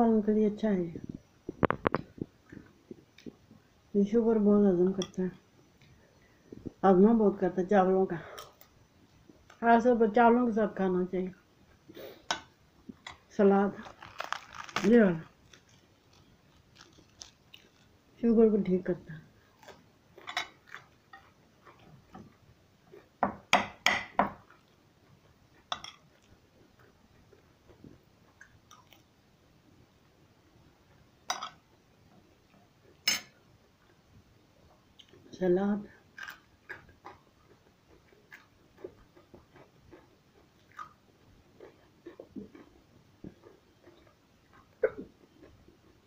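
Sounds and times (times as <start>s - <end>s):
faint chewing crunches: 11.3s - 18.2s, 19.3s - 23.2s, 24.4s - 29.2s, 34.6s - 35.3s, 35.9s - 46.0s.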